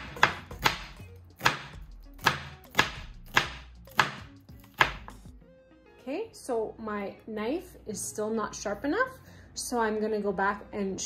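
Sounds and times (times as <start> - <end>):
knife chopping onion on board: 0.0 - 5.3.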